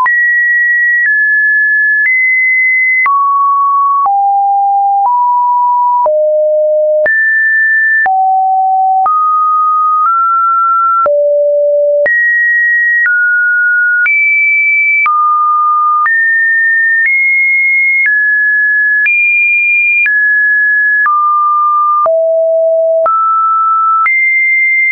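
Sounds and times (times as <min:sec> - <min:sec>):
electronic sine tones: 0:00.0 - 0:01.1, 0:05.9 - 0:07.2, 0:08.0 - 0:16.1, 0:20.9 - 0:24.1.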